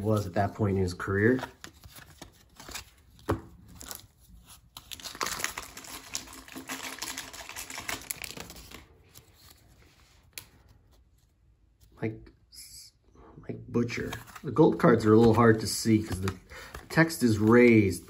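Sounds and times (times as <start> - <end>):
wrapper tearing and crinkling: 4.8 - 8.9.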